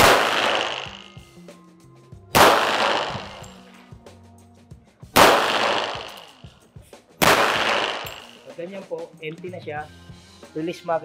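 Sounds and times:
pistol shots with echo: 0.0 - 1.1, 2.3 - 3.6, 5.2 - 6.4, 7.2 - 8.4.

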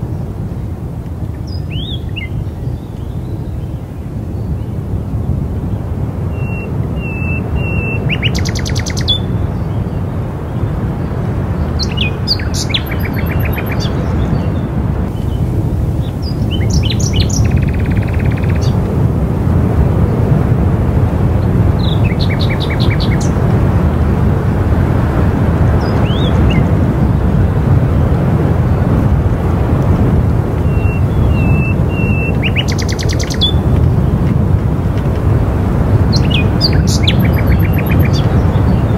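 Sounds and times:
wind blowing: 0.0 - 38.9
birds chirping and trilling: 1.4 - 4.7, 6.3 - 18.9, 21.4 - 23.5, 25.6 - 26.8, 30.6 - 34.2, 36.0 - 38.9.

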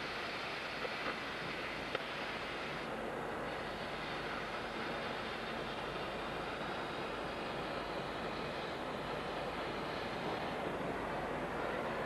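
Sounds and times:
gas cutting torch hissing: 0.0 - 10.9.

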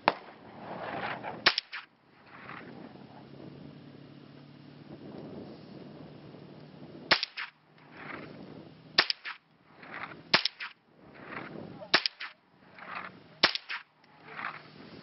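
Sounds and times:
rifle shots: 0.0 - 0.4, 1.4 - 1.9, 7.1 - 7.5, 9.0 - 9.4, 10.3 - 10.8, 11.9 - 12.4, 13.4 - 13.9.

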